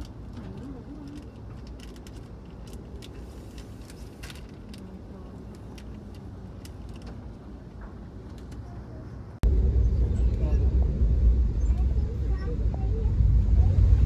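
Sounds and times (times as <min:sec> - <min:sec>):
light clicks and rattles: 0:00.0 - 0:09.0
vehicle rumbling: 0:00.0 - 0:14.0.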